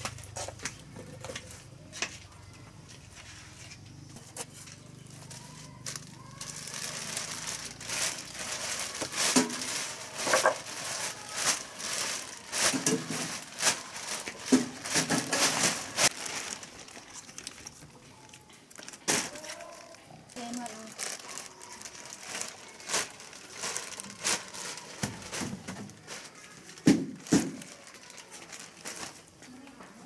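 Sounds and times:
dry material crinkling and tearing: 4.4s - 29.8s.

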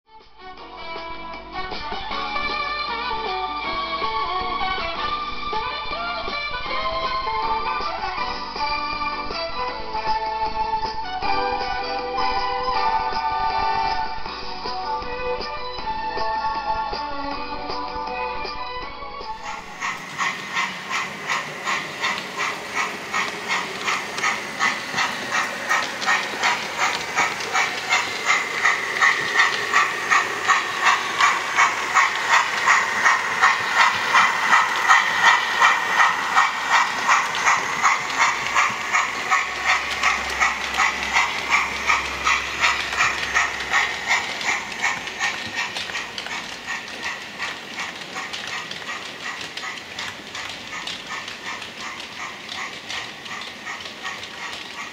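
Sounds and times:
steam locomotive chuffing: 19.2s - 54.9s.

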